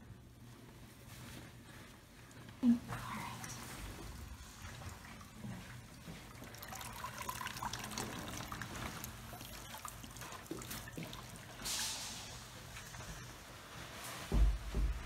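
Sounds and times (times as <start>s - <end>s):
bath water trickling and dripping: 1.4s - 14.0s
water swish: 2.9s - 14.2s.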